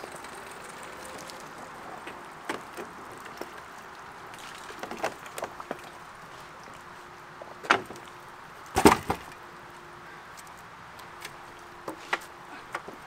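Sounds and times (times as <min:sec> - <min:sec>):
bicycle clattering onto wooden deck: 0:08.7 - 0:09.4.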